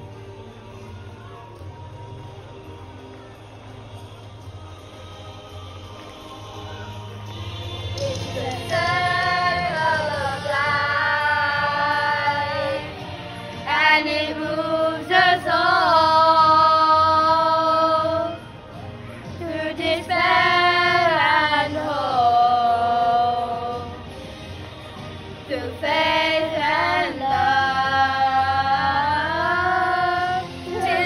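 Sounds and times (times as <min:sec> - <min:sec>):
children singing together: 0:07.9 - 0:18.5, 0:19.3 - 0:24.0, 0:25.5 - 0:31.0.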